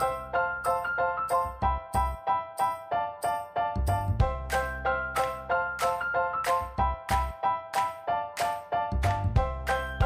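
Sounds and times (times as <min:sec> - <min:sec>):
background music with bright notes: 0:00.0 - 0:10.0
low bass: 0:03.8 - 0:04.6, 0:09.0 - 0:09.7.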